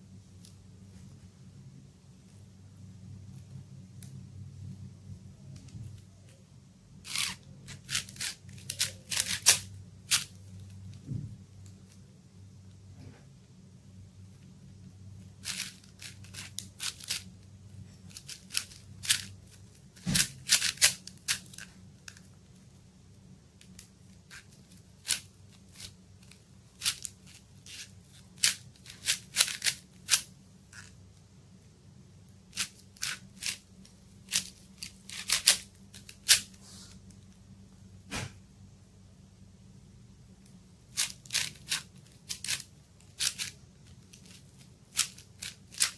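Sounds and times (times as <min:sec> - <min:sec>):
plastic puzzle cube clacking: 0:15.4 - 0:17.3, 0:41.0 - 0:45.9.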